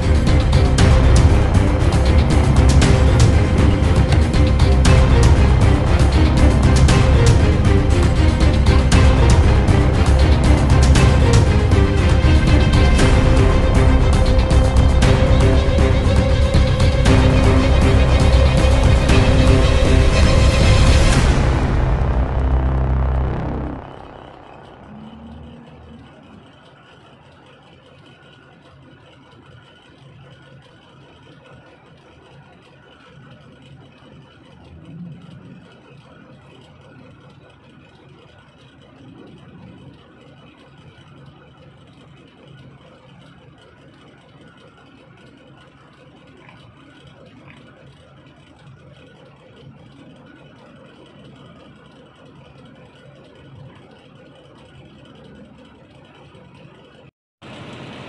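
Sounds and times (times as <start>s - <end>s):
heavy engine idling: 0.0s - 27.6s.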